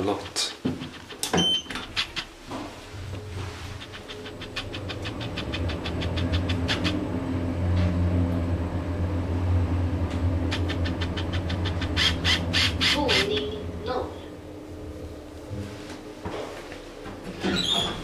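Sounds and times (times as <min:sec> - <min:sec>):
elevator low hum: 0:00.0 - 0:18.0
autofocus motor ticking: 0:03.8 - 0:07.1.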